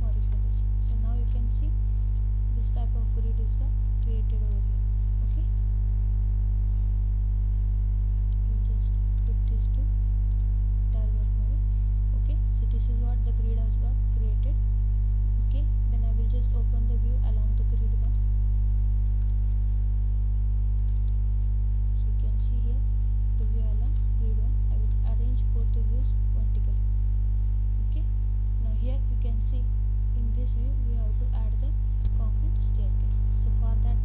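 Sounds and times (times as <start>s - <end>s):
electrical mains hum: 0.0s - 34.0s.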